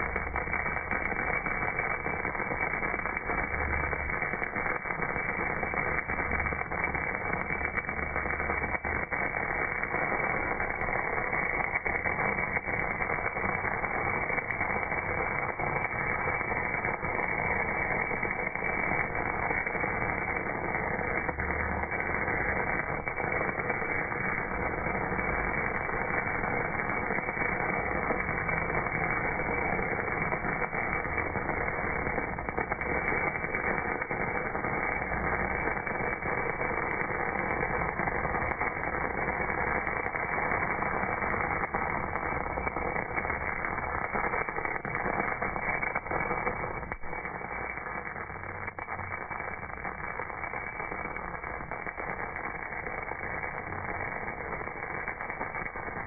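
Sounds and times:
faint crackles: 0.0s - 56.0s
welding arc hissing: 0.0s - 56.0s.

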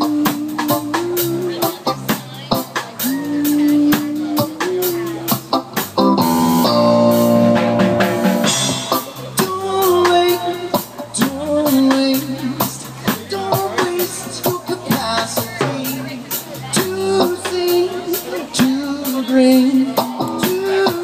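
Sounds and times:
person singing: 0.0s - 5.7s, 8.4s - 21.0s
drum kit beat: 0.0s - 21.0s
electric guitar: 0.0s - 21.0s.

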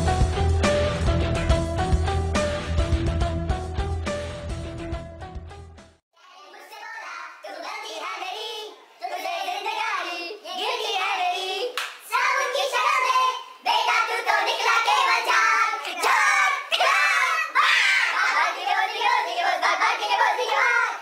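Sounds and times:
people singing: 8.2s - 16.9s, 18.1s - 21.0s
hand clapping: 11.7s - 12.0s.

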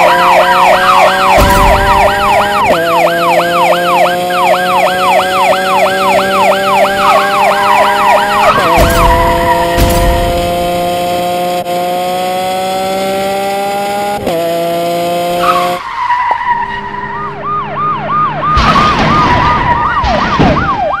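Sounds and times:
police siren yelping: 0.0s - 11.0s, 15.3s - 21.0s
car engine running: 0.0s - 20.2s.

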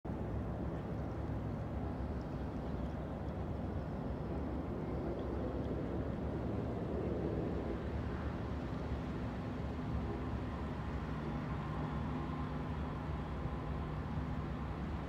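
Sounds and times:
boat engine low drone: 0.1s - 15.0s.

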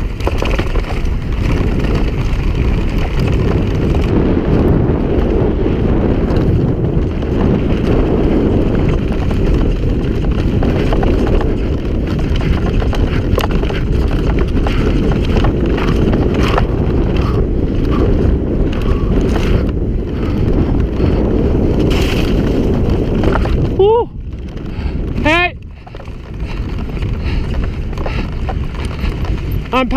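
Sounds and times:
stones clicking and clattering: 0.0s - 4.1s, 21.8s - 29.9s
bike tyre noise on gravel: 0.0s - 29.9s
wind rush on microphone: 0.0s - 29.9s.

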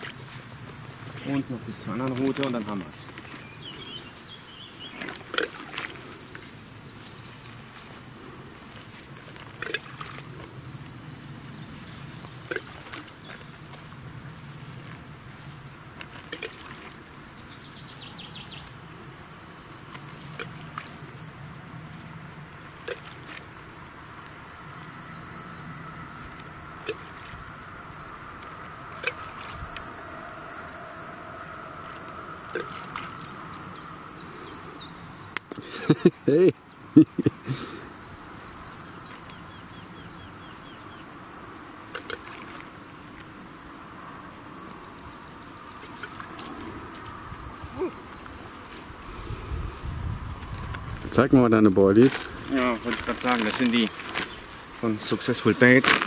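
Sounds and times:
insects chirping: 0.0s - 56.0s
bird trills: 24.5s - 35.4s.

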